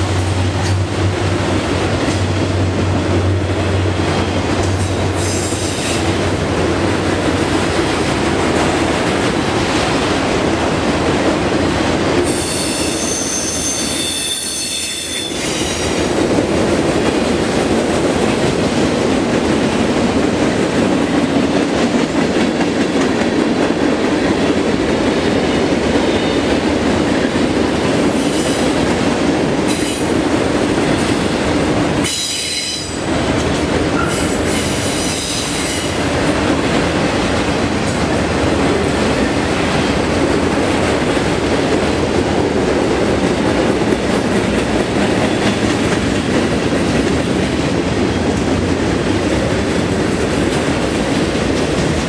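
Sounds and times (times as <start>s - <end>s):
high wheel squeals: 12.4s - 15.8s.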